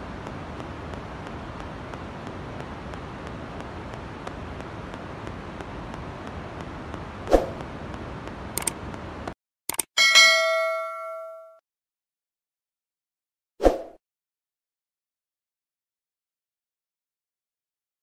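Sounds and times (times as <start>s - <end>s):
sharp clicks: 8.5s - 8.8s, 9.7s - 9.9s
bell ding: 10.0s - 11.6s.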